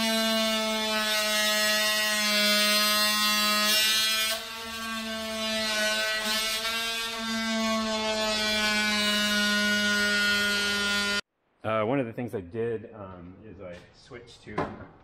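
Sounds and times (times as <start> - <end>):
oscillating multi-tool cutting wood: 0.0 - 11.2.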